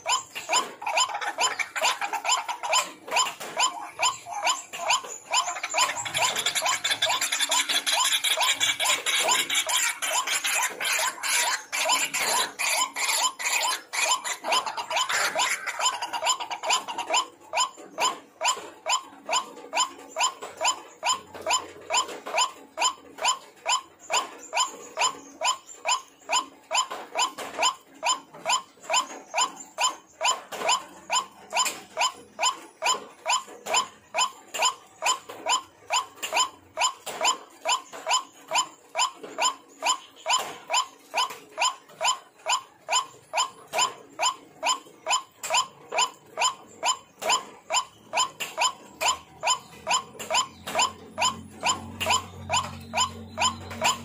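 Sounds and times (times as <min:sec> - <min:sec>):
waterhen calling: 0:00.0 - 0:36.6.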